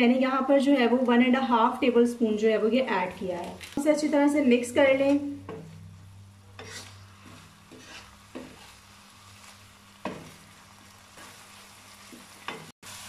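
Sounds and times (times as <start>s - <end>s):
wooden spatula scraping a pan: 6.5s - 12.7s
chicken sizzling in a pan: 6.5s - 13.0s.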